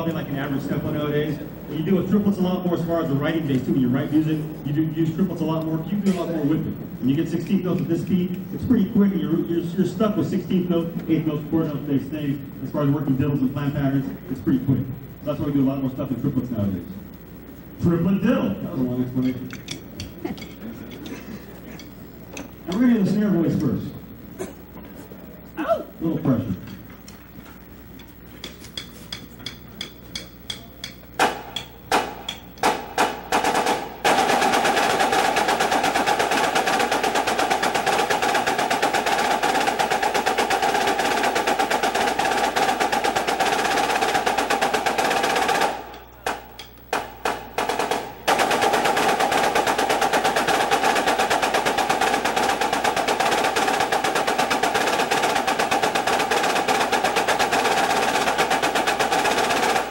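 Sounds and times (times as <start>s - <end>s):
marching snare drums playing: 0.0s - 7.7s, 30.5s - 59.9s.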